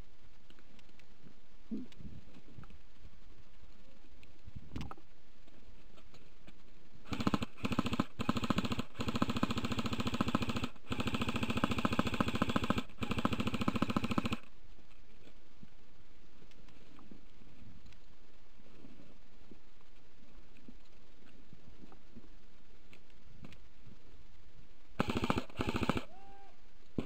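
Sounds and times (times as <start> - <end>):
airsoft rifle full auto fire: 7.1 - 14.5, 25.0 - 26.2.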